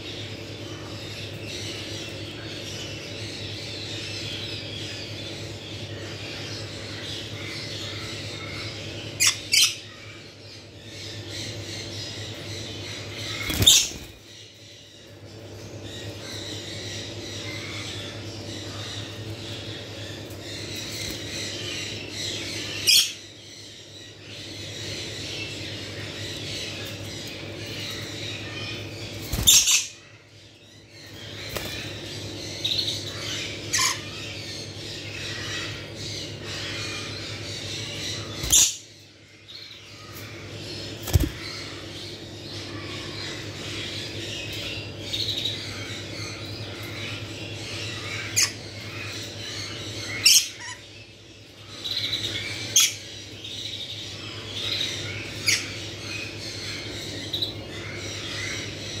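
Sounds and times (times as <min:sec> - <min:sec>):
steady low hum: 0:00.0 - 0:59.0
parrots screeching: 0:07.8 - 0:10.3, 0:27.8 - 0:30.0, 0:32.7 - 0:35.8, 0:45.5 - 0:50.9, 0:51.9 - 0:53.1.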